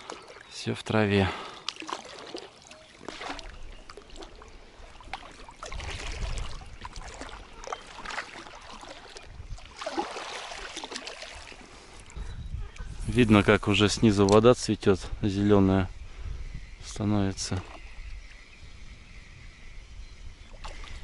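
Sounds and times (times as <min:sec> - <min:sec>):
water splashing off paddle: 0:01.7 - 0:04.4, 0:05.0 - 0:11.6.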